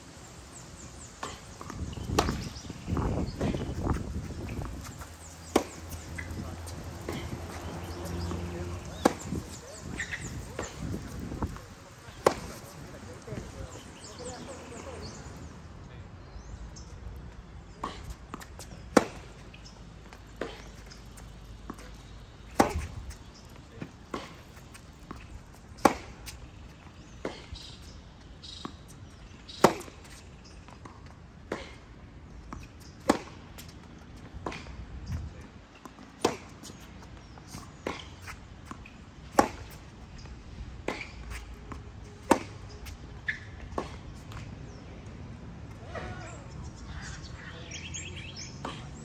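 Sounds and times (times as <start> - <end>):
tennis ball hit by racket: 1.2 - 2.7, 4.6 - 14.9, 17.8 - 19.4, 21.7 - 23.1, 25.8 - 26.6, 29.5 - 30.2, 36.0 - 36.8, 37.5 - 39.8, 40.8 - 44.4
tennis ball bounces: 1.2 - 15.4, 17.8 - 31.8, 32.5 - 35.2, 35.8 - 44.8
distant tennis hits: 4.6 - 15.3, 20.1 - 26.6, 35.8 - 39.8, 40.8 - 43.0.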